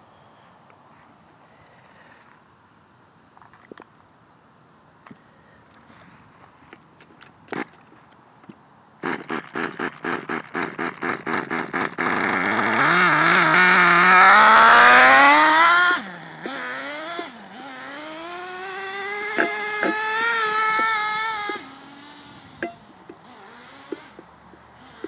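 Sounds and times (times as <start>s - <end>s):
small nitro engine revving: 9.0s - 25.0s.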